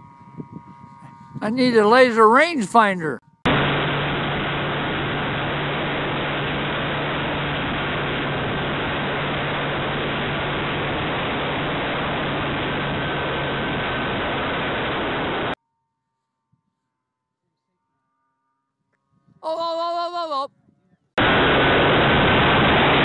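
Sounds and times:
airflow and engine roar: 0:00.0 - 0:15.6, 0:21.2 - 0:23.0
low steady hum: 0:00.0 - 0:16.0.

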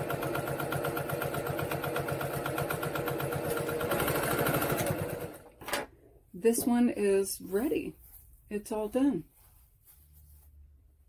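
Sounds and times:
electric sewing machine stitching: 0:00.0 - 0:05.6.

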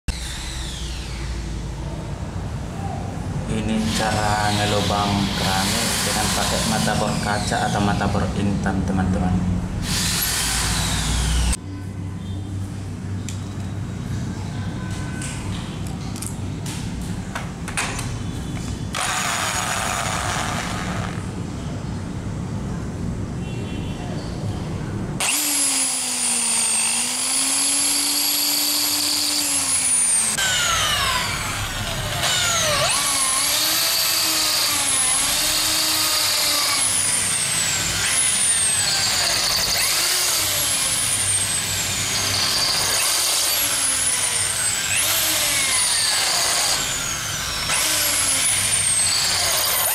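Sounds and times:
electric drill whining: 0:00.1 - 0:01.5, 0:03.8 - 0:08.1, 0:09.8 - 0:11.6, 0:18.9 - 0:21.3, 0:25.2 - 0:49.9.

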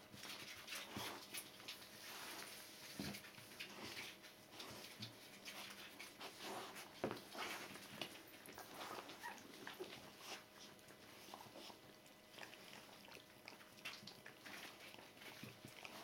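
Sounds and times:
puppies squeaking: 0:08.5 - 0:09.9.

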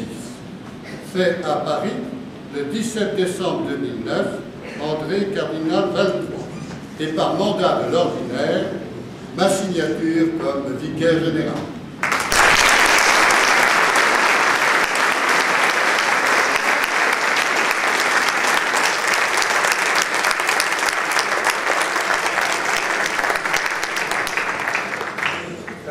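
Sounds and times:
crowd applauding: 0:12.0 - 0:25.9.

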